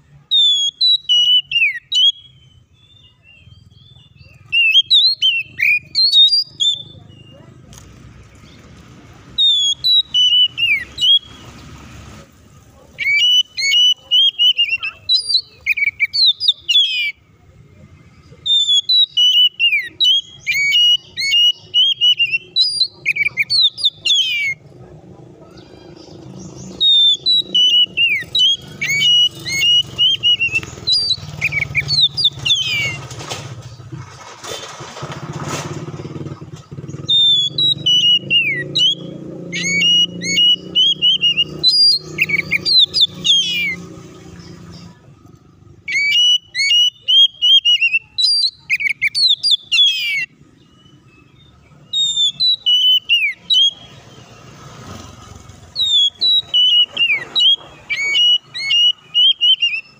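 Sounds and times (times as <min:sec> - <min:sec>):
low rumble of traffic: 0:00.0 - 0:59.9
bird singing rapid whistles: 0:00.2 - 0:07.4, 0:09.3 - 0:11.8, 0:12.8 - 0:17.3, 0:18.2 - 0:24.8, 0:25.5 - 0:33.0, 0:36.7 - 0:59.9.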